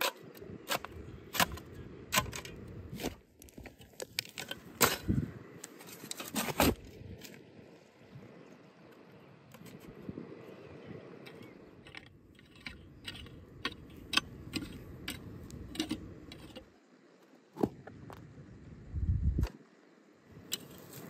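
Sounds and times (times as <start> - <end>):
garden tools scraping stony soil: 0.0 - 7.4, 11.9 - 16.7.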